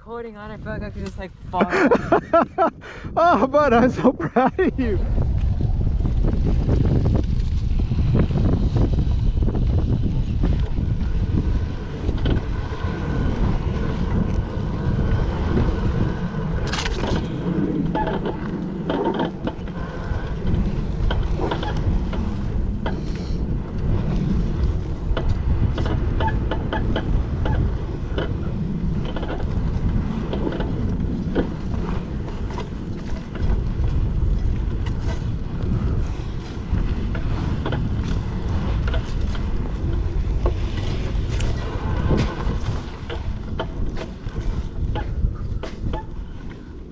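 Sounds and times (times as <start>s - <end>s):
wind buffeting microphone: 0.0s - 46.9s
dirt bike engine: 4.4s - 46.9s
knocks and rattles over rocks: 15.2s - 23.2s, 23.9s - 46.7s.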